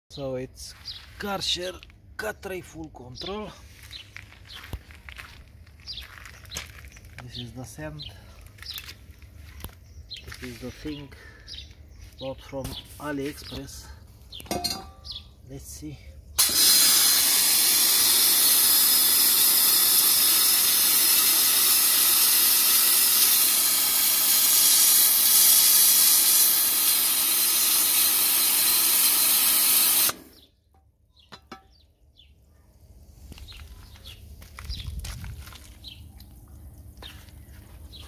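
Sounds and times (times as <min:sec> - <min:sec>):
pressure washer jet hissing: 0:16.4 - 0:30.4.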